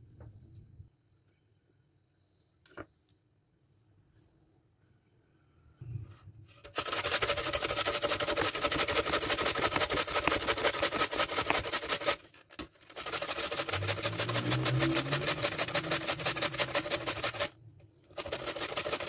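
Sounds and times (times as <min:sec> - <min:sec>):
radish grated on metal grater: 0:06.6 - 0:19.0.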